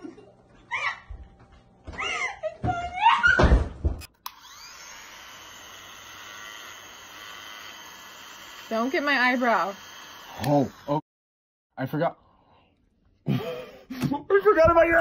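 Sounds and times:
electric hair clippers buzzing: 4.0s - 11.0s.

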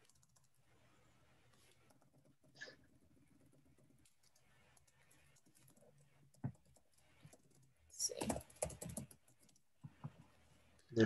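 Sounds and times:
keyboard typing: 0.0s - 0.6s, 3.4s - 10.2s.

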